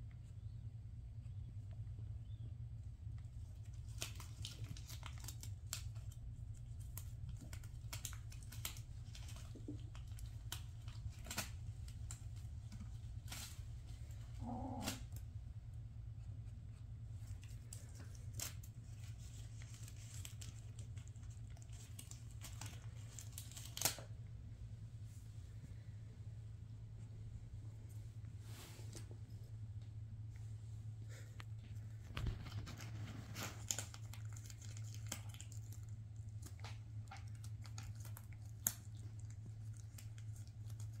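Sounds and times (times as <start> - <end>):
steady low hum: 0.0 - 41.0
kittens crunching dry kibble: 1.4 - 30.5, 31.1 - 41.0
plastic bow crinkling: 17.2 - 24.2.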